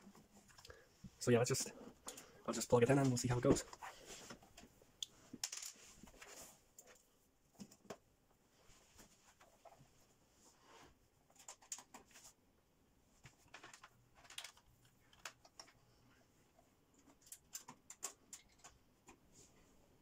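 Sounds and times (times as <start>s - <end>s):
cables clicking and rustling: 0.0s - 10.2s, 11.2s - 12.4s, 13.1s - 19.7s.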